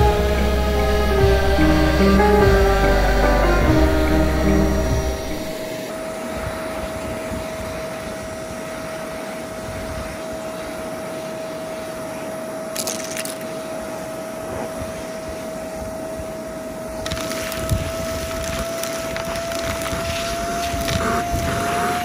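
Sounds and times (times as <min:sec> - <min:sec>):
vacuum cleaner motor whine: 0:00.0 - 0:12.6, 0:13.8 - 0:22.0
brief crackles: 0:17.0 - 0:21.9.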